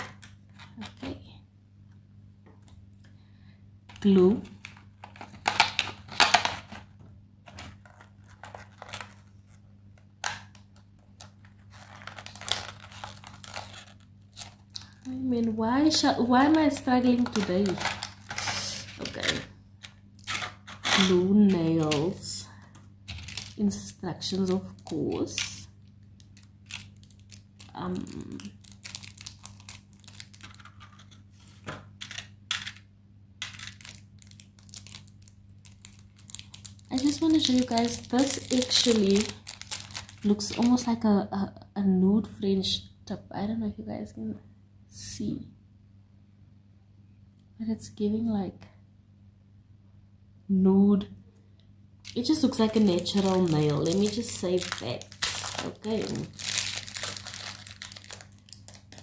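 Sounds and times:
faint low hum: 0.0s - 59.0s
plastic case clicks and crinkles: 3.9s - 6.9s, 17.0s - 18.4s, 22.7s - 23.6s, 24.3s - 32.8s, 33.4s - 40.7s
plastic blister pack crinkling: 3.9s - 32.8s, 33.4s - 40.9s, 52.0s - 59.0s.

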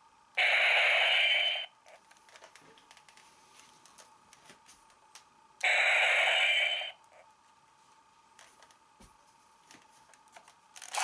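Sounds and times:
toy electronic sound clip: 0.4s - 1.7s, 5.6s - 7.0s.

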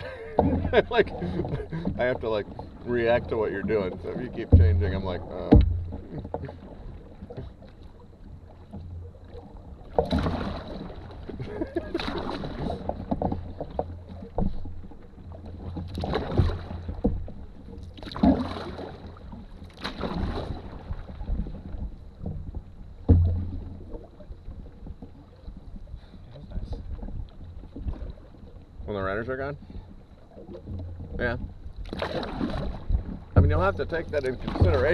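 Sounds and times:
paddle strokes splashing: 0.0s - 34.9s
low rumble: 2.8s - 6.2s.

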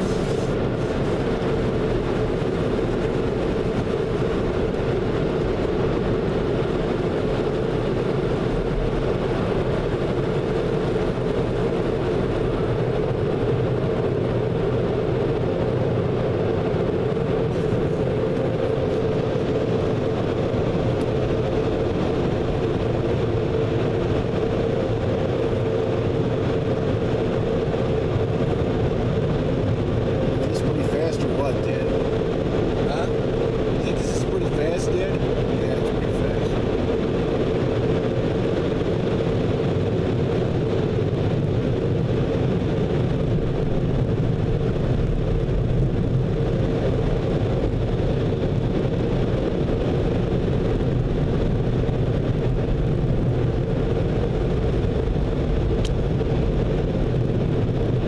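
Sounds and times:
car wash air dryers blowing: 0.0s - 2.8s.

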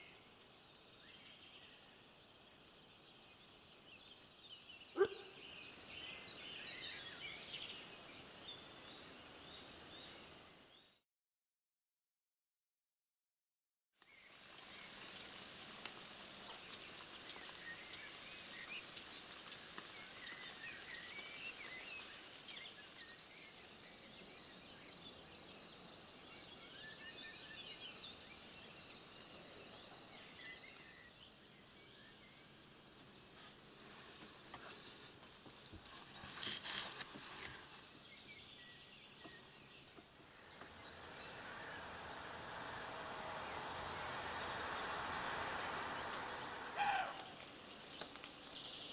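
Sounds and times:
small birds chirping: 3.1s - 11.0s, 16.4s - 48.9s
rustling: 35.8s - 37.9s
rushing hiss: 40.0s - 48.9s.

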